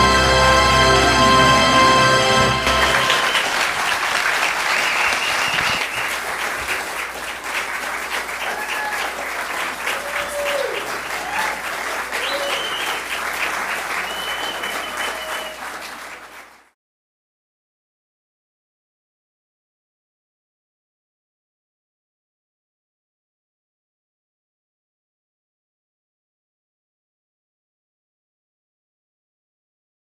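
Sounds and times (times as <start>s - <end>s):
audience applauding: 0.0s - 16.8s.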